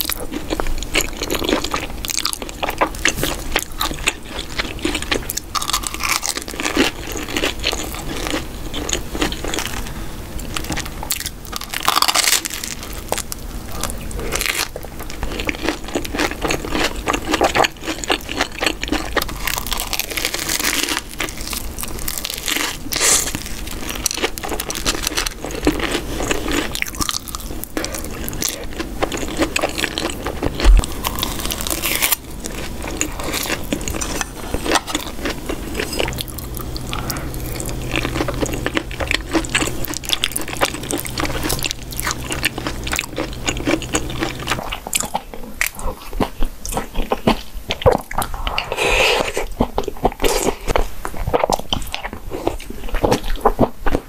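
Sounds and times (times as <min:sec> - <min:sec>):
person chewing and biting: 0:00.0 - 0:54.0.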